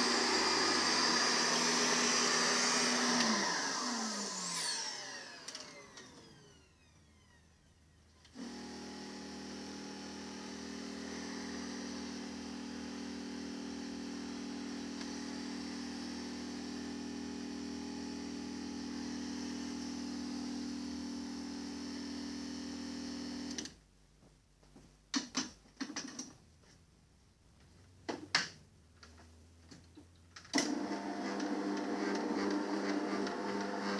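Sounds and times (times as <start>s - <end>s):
electric pump humming: 0.0s - 6.7s, 8.4s - 23.6s, 30.6s - 33.9s
vacuum cleaner motor winding down: 0.0s - 23.6s, 30.6s - 33.9s.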